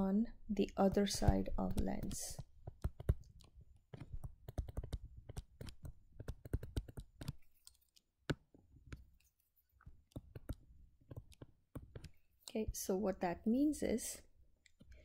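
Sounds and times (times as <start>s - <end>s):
stylus clicking on tablet screen: 0.6s - 12.5s.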